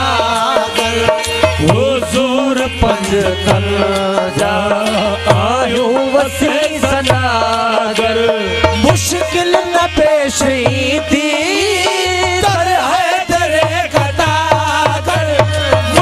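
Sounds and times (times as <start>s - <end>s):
harmonium: 0.0s - 16.0s
hand drum beat: 13.6s - 16.0s.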